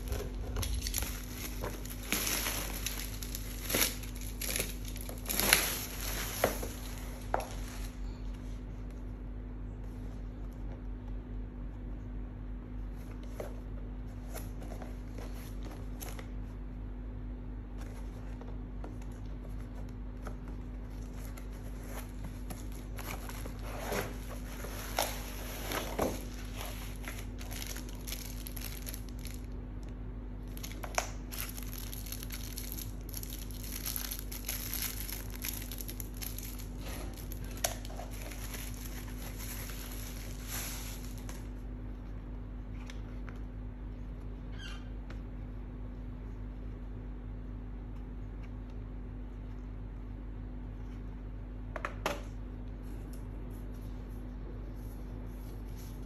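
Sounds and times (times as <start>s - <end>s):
bubble wrap crinkling: 0.0s - 8.0s, 20.9s - 41.6s
steady low hum: 0.0s - 56.0s.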